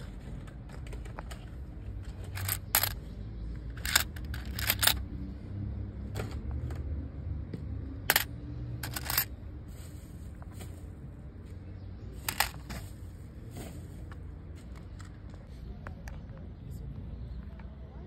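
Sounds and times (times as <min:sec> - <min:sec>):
coins clinking in a metal tin: 0:02.2 - 0:03.0, 0:03.7 - 0:05.0, 0:08.1 - 0:09.3, 0:12.2 - 0:12.7.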